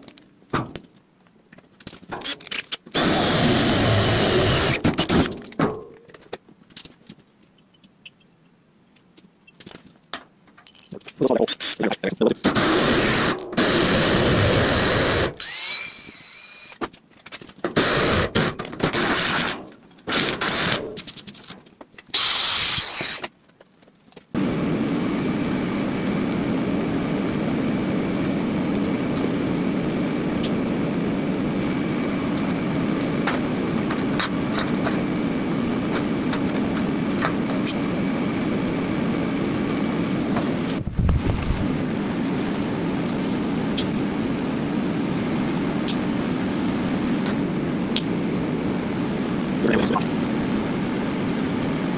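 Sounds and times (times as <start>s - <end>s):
drill boring through sheet steel: 3.0s - 5.3s, 12.5s - 16.8s, 17.8s - 20.9s, 22.2s - 23.2s
machine whirring: 12.4s - 16.8s
rising motor whine: 24.4s - 51.9s.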